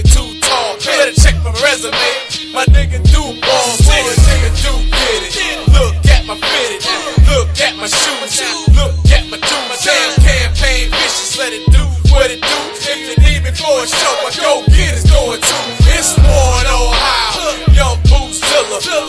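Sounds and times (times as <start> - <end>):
heavy bass beat: 0.0 - 19.0
rapping: 0.0 - 19.0.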